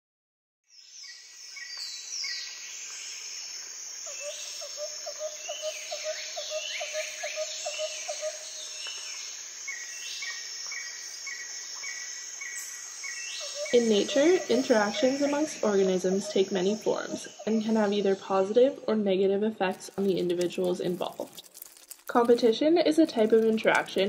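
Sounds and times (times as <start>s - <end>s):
high insect trill: 1.0s - 18.7s
bird calls sweeping up and down: 4.1s - 18.3s.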